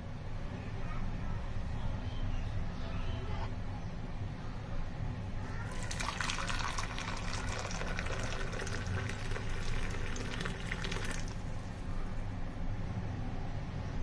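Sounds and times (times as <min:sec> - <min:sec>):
water pouring into a cup: 0:05.7 - 0:11.7.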